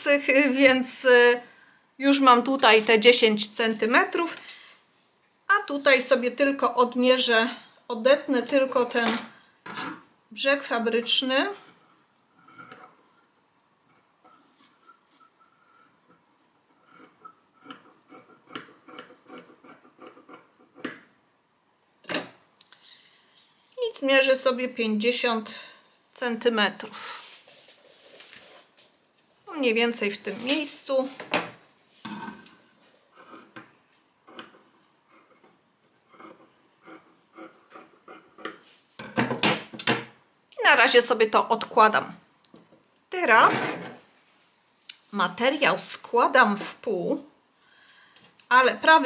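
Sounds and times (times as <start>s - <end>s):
fabric rustling: 27.0s - 28.8s.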